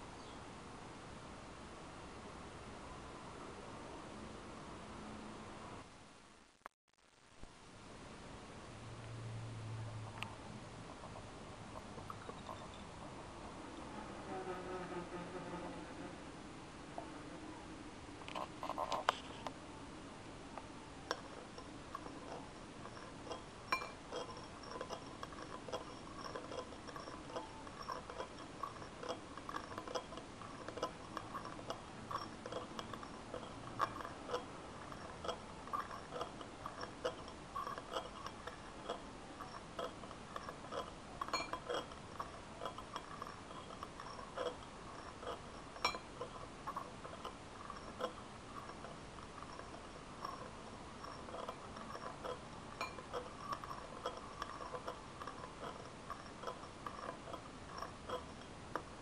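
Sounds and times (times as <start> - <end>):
spoon stirring in glass dish: 21.0 - 59.0.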